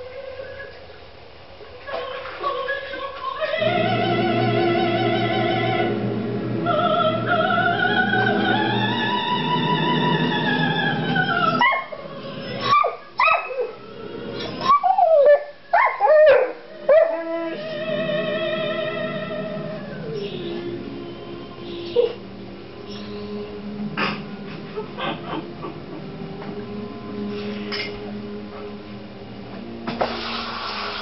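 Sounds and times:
opera singer with vibrato: 0.0s - 1.0s, 1.6s - 15.3s, 16.6s - 22.0s
puppy whining and yipping: 21.9s - 22.2s.

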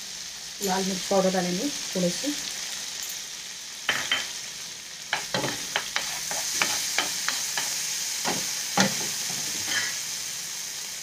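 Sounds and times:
food sizzling in hot fat: 0.0s - 11.0s
spatula scraping and tapping pan: 5.1s - 10.0s.

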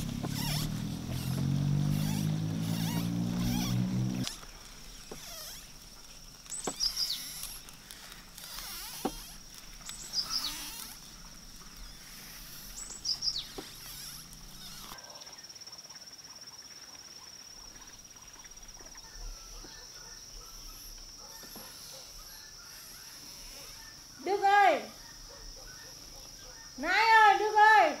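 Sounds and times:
high-pitched insect trill: 0.0s - 28.0s
downward-sweeping bird chirps: 11.8s - 14.8s.

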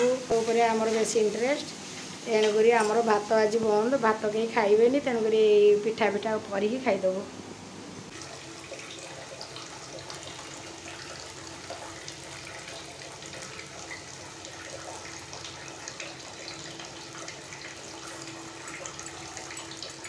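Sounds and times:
batter sizzling on hot pan: 8.1s - 20.0s.

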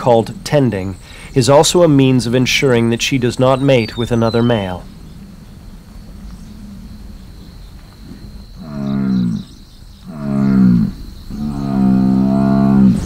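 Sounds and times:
bison bellowing: 2.6s - 13.0s.

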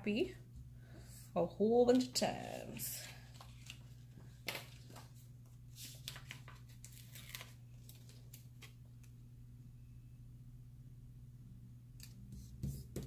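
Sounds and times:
steady low hum: 0.0s - 6.8s
paper rustling and crinkling: 1.9s - 8.8s.

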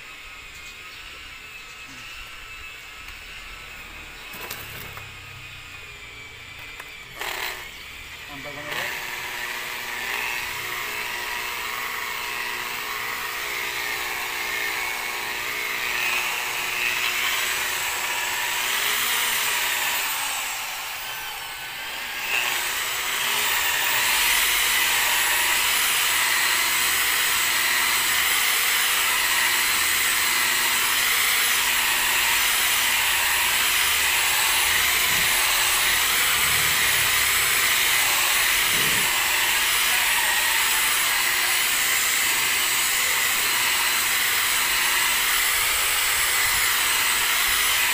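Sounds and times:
electric polisher motor whine: 0.0s - 47.9s.

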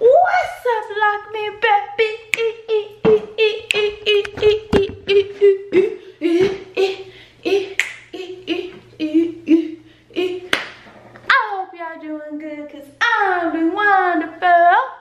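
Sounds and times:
hand claps: 7.8s - 8.0s, 10.5s - 10.8s.

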